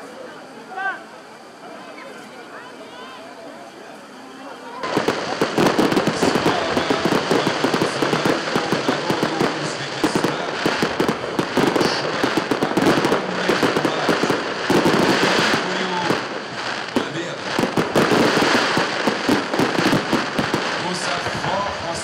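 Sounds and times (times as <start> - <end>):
fireworks bangs and crackles: 4.8 - 22.0.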